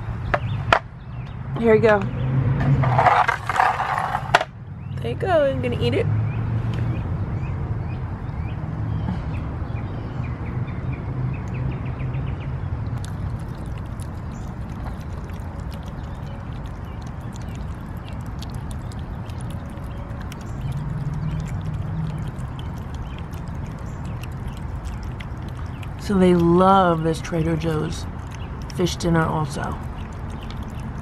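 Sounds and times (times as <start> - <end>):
cats chewing and lapping food: 13.0 - 31.0.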